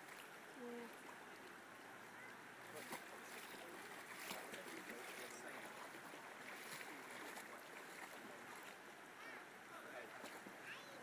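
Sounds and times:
stream flowing over stones: 0:00.0 - 0:11.0
dogs splashing in water: 0:02.7 - 0:08.8.

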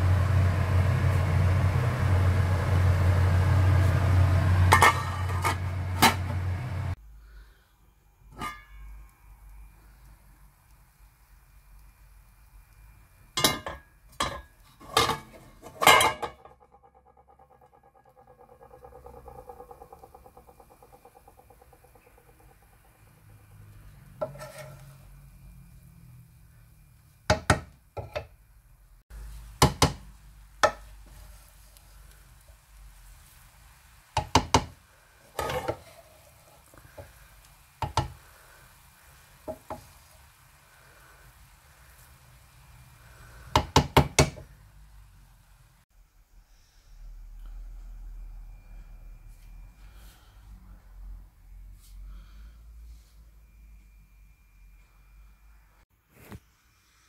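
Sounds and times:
metal kitchenware clanking: 0:04.6 - 0:06.5, 0:13.4 - 0:20.6, 0:35.3 - 0:36.2
spoon scraping pot: 0:04.7 - 0:06.4, 0:24.1 - 0:25.1, 0:35.3 - 0:37.0
wooden spoon stirring rice in pot: 0:24.1 - 0:25.1
spoon knocking on pot: 0:30.6 - 0:30.9.

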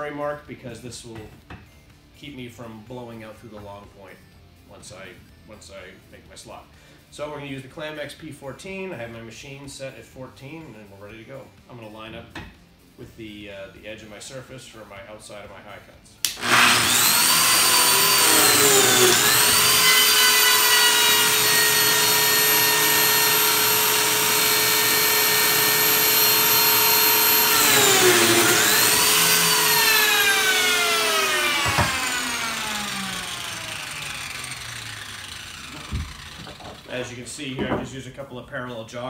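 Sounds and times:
joiner motor running: 0:16.3 - 0:36.9.

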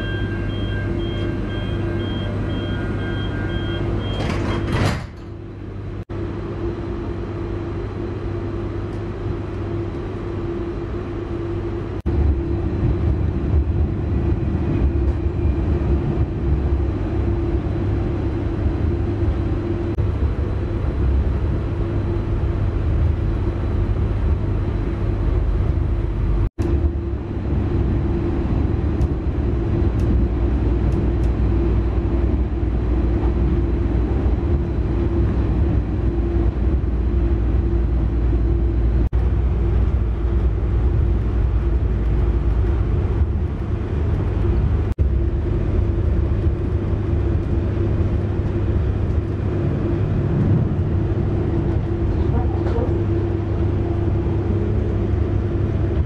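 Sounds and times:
door warning beeps: 0:00.0 - 0:04.9
sliding doors shutting: 0:00.0 - 0:05.4
electric train hum: 0:00.0 - 0:56.0
wheels rumbling on track: 0:00.0 - 0:56.0.

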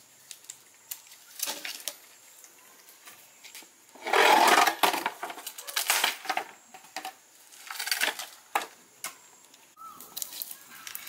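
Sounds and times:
wooden logs knocking together: 0:04.0 - 0:09.2.

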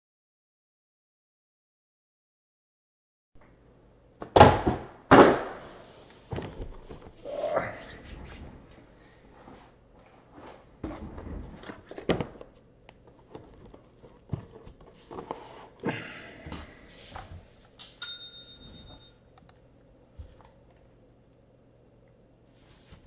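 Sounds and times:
knocks and thumps: 0:10.8 - 0:12.4.

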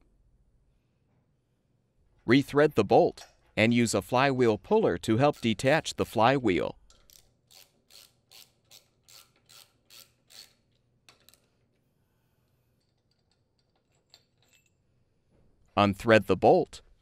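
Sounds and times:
ratchet wrench clicking: 0:06.9 - 0:11.5.

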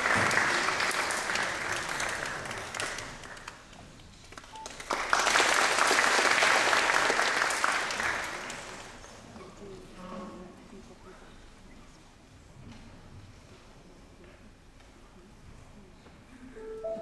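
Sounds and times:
audience clapping: 0:00.0 - 0:09.3.

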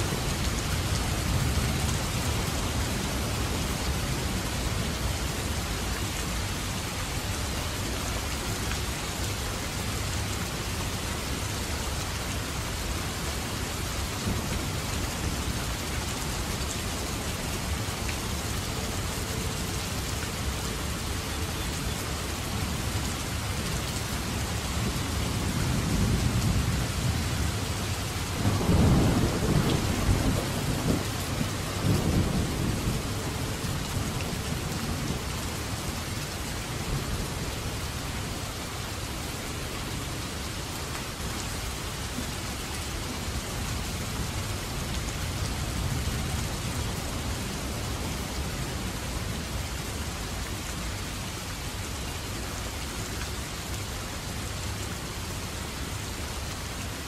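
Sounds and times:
heavy rain: 0:00.0 - 0:57.0
rolling thunder: 0:28.4 - 0:34.0.

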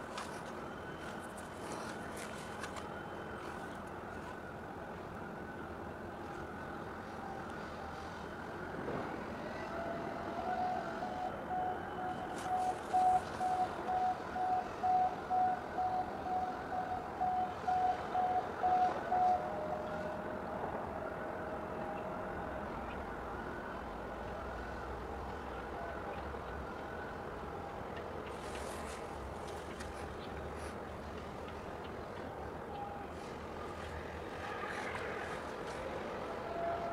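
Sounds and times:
electronic warning beeper: 0:10.6 - 0:19.7.

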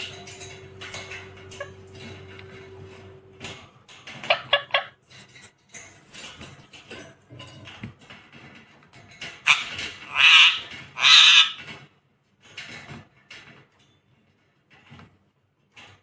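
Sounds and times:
light clicks and rustles: 0:00.0 - 0:10.1, 0:11.6 - 0:16.0
parakeet harsh screeches: 0:09.4 - 0:11.7.

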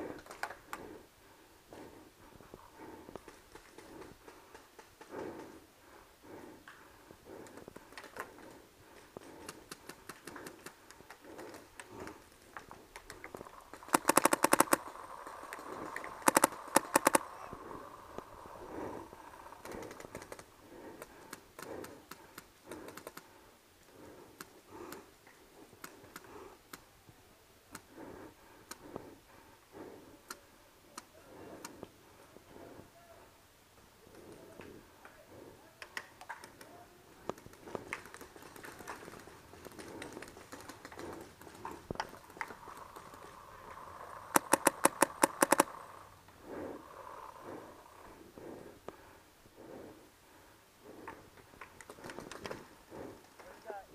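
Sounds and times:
paintball marker rapid shots: 0:13.1 - 0:17.4, 0:44.2 - 0:45.9
distant paintball pops: 0:13.8 - 0:17.2.

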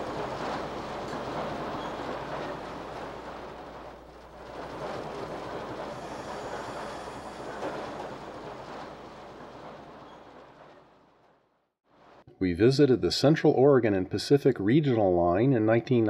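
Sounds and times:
locomotive engine drone: 0:00.0 - 0:11.4
wheels rumbling on rails: 0:00.0 - 0:12.3.

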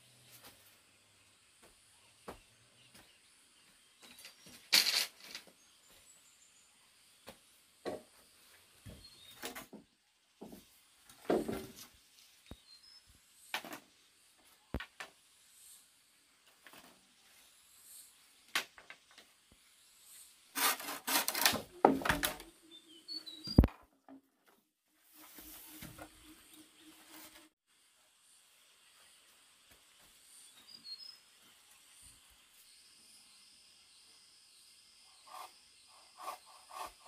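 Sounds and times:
wood knocking and scraping: 0:10.4 - 0:11.9, 0:20.6 - 0:22.5.

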